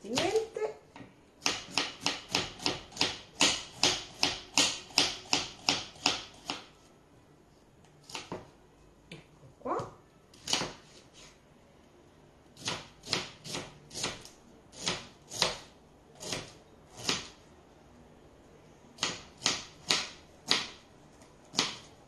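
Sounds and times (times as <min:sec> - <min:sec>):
knife chopping on wooden board: 0:01.4 - 0:06.7, 0:10.4 - 0:11.0, 0:12.6 - 0:17.4, 0:19.0 - 0:20.8, 0:21.5 - 0:21.9.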